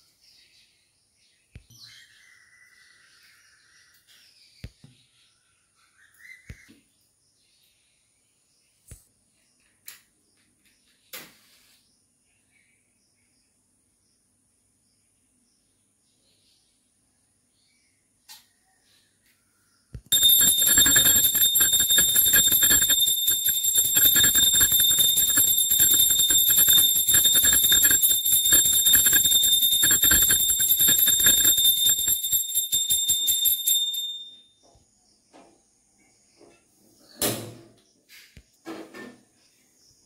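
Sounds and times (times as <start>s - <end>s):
small hand bell ringing rapidly: 20.1s - 34.4s.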